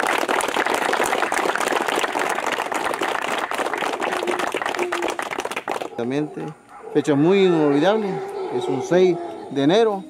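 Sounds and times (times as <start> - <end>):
crowd applauding: 0.0 - 6.0.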